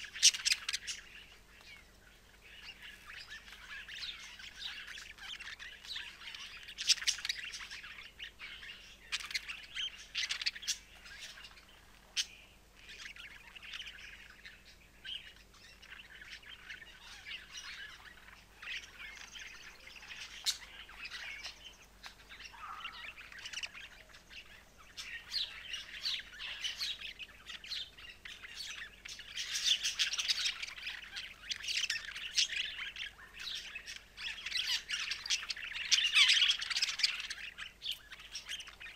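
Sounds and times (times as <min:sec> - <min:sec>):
budgerigars warbling: 0:00.0 - 0:38.9.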